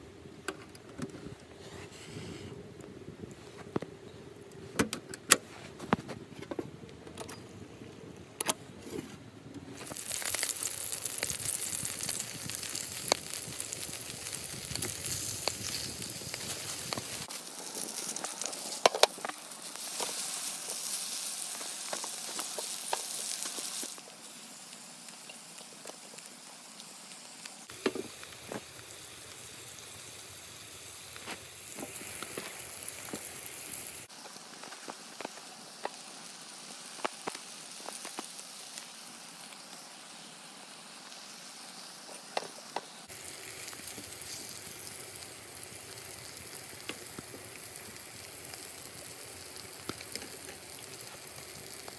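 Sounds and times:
steaks sizzling in a frying pan: 9.8 - 51.9.

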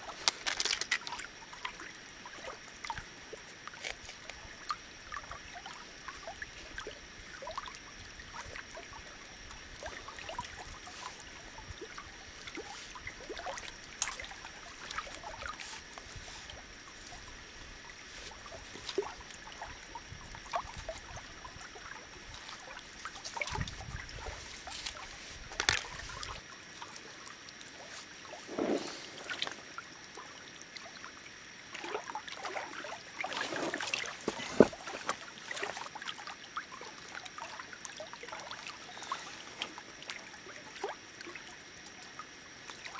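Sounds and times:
waves lapping against rocks: 28.3 - 29.7, 32.6 - 35.8
water splashing: 31.8 - 36.1.

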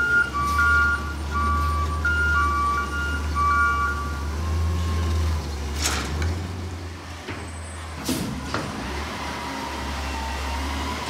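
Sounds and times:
truck engine low drone: 0.0 - 11.0
air brakes hissing: 7.9 - 8.4.

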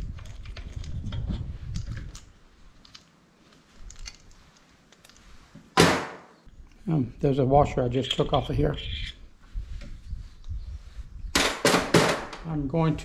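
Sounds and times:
small clicks and rubbing: 0.0 - 5.7.

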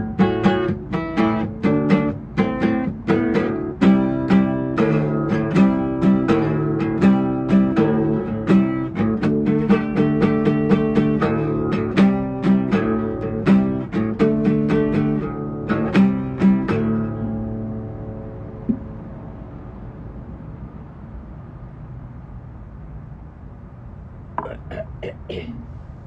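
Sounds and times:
acoustic guitar playing: 0.0 - 19.4.

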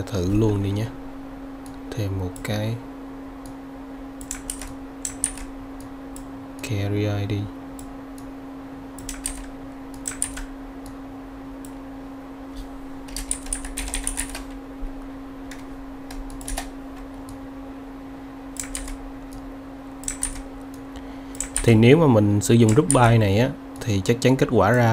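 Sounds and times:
steady low hum: 0.0 - 24.9
typing on computer keyboard: 4.2 - 5.5, 9.0 - 10.5, 13.1 - 14.6, 15.5 - 16.7, 18.6 - 19.0, 20.0 - 20.5, 21.3 - 21.8, 22.6 - 23.2.

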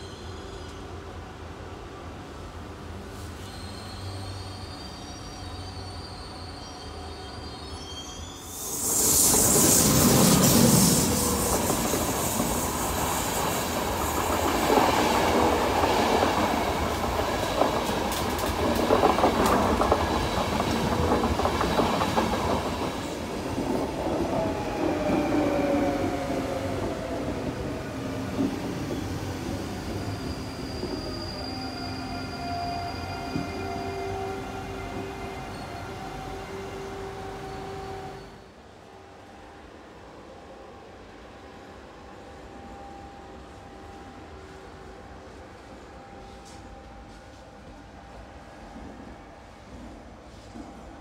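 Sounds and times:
electric train whine: 8.4 - 50.5
train wheels clickety-clack: 8.9 - 25.4, 48.6 - 51.0
wheel squeal: 29.8 - 34.4.

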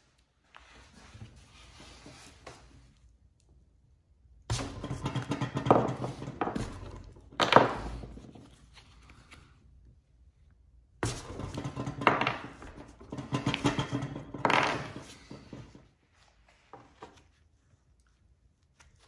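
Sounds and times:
metal parts clunking and scraping: 4.6 - 8.4, 11.0 - 15.9.

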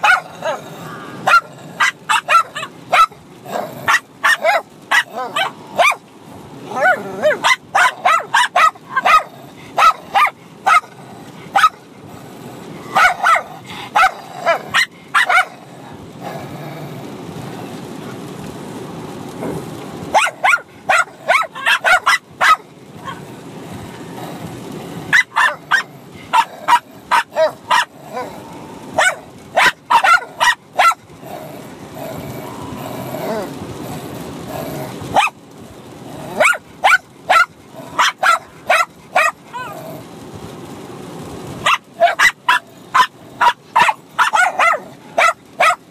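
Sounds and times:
dogs barking: 0.0 - 6.0, 6.6 - 11.9, 12.8 - 15.9, 20.1 - 23.3, 25.1 - 31.5, 34.6 - 35.4, 36.2 - 39.8, 41.6 - 45.9.

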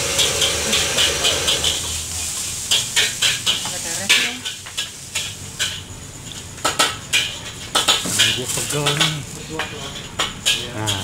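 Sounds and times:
metal utensils clinking: 0.1 - 5.8, 6.7 - 11.0.

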